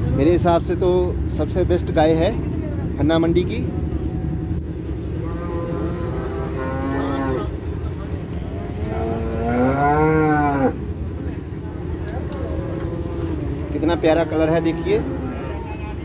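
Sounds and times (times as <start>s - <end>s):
cow mooing: 5.2s - 7.6s, 8.6s - 10.9s, 12.3s - 16.0s.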